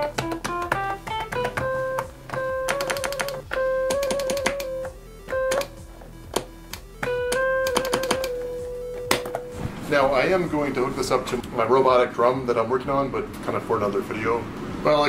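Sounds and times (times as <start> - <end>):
electric piano synthesizer notes: 0.0 - 11.4.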